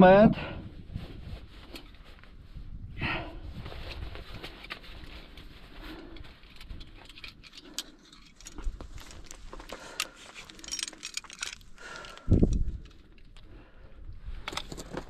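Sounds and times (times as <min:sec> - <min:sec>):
metal gear clinking: 0:10.0 - 0:12.3.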